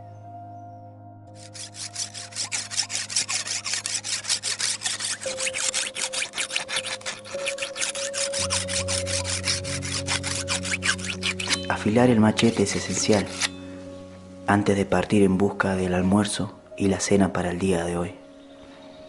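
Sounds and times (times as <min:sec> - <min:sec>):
soft background music: 0:00.0 - 0:19.0
file rasping on blade: 0:01.4 - 0:11.8, 0:12.4 - 0:13.5.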